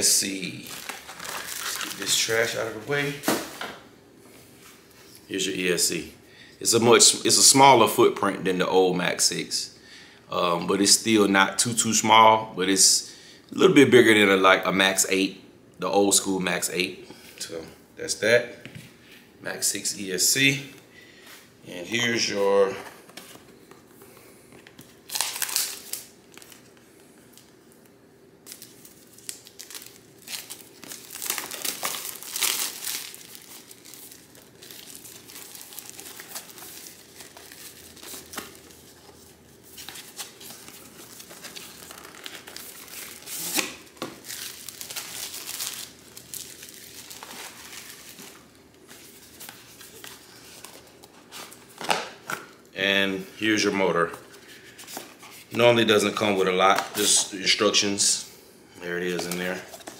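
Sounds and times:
packaging crinkling and tearing: 0:00.5 - 0:02.6, 0:24.8 - 0:26.7, 0:28.4 - 0:52.6.

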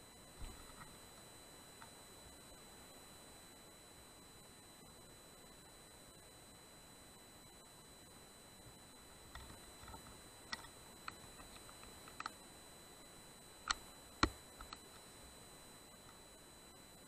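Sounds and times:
faint clicks and taps: 0:09.3 - 0:12.4, 0:13.6 - 0:15.1.

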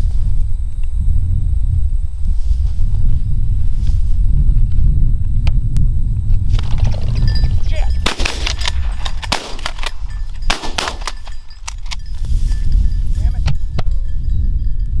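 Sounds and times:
shotgun shots: 0:08.0 - 0:11.3.

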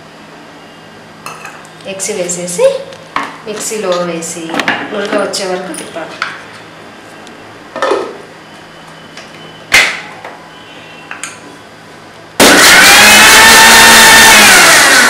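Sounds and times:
mixer grinder whining: 0:12.4 - 0:15.0.

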